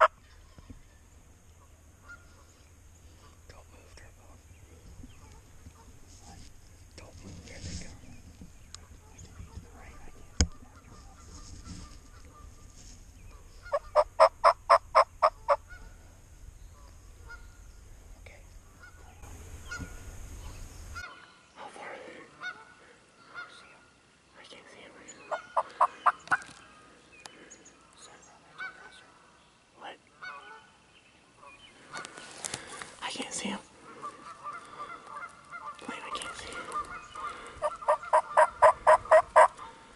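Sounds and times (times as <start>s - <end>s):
turkey yelping: 13.6s - 15.8s, 36.7s - 39.8s.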